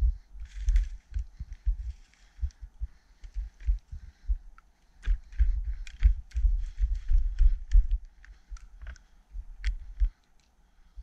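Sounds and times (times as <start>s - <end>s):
footsteps in snow: 0.4s - 2.4s
branches brushing: 0.4s - 2.6s
twigs snapping: 0.4s - 2.6s, 4.5s - 10.6s.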